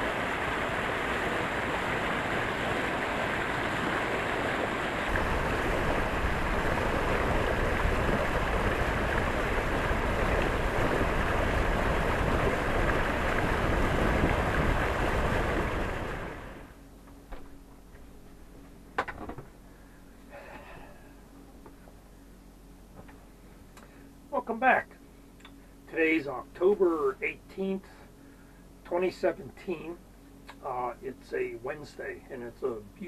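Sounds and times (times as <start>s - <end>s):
water rushing along hull: 0.0s - 16.8s
wind buffeting microphone: 4.4s - 16.6s.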